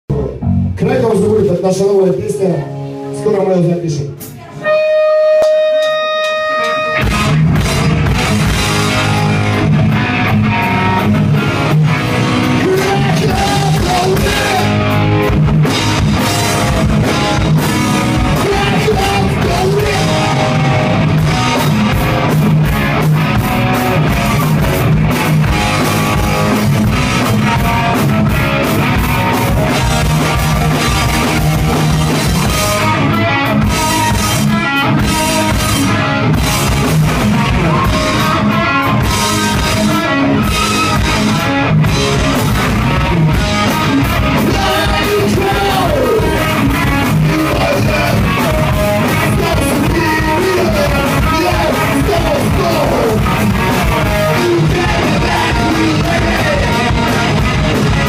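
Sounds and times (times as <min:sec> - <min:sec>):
live rock band playing: 0:00.1 - 0:58.0
person singing: 0:12.6 - 0:14.8, 0:18.2 - 0:20.9, 0:43.8 - 0:57.4.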